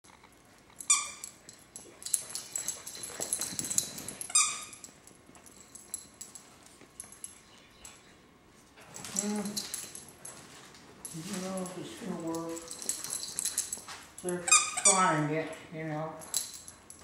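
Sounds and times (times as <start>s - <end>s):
dogs scuffling: 0.1s - 17.0s
toy squeaking: 0.8s - 1.3s, 14.4s - 15.2s.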